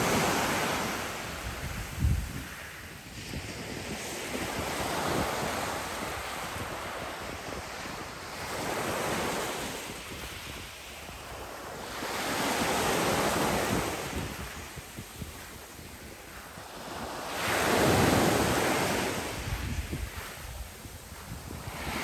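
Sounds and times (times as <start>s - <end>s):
waves washing up pebble beach: 0.0s - 22.0s.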